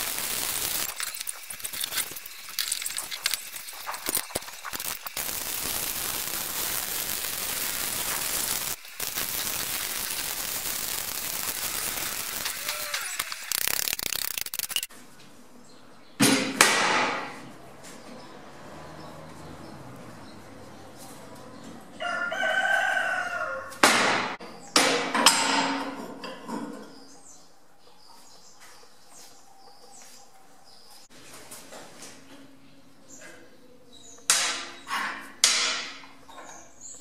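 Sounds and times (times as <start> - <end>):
welding arc crackling and hissing: 0.0 - 14.9.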